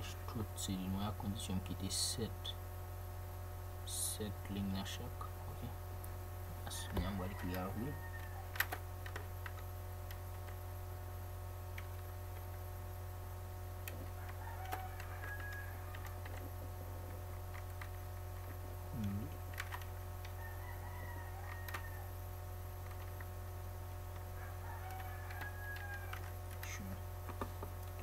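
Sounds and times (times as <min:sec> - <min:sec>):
low electrical hum: 0:00.0 - 0:28.0
keyboard keystrokes and clicks: 0:17.3 - 0:20.4, 0:22.8 - 0:23.3, 0:24.8 - 0:28.0.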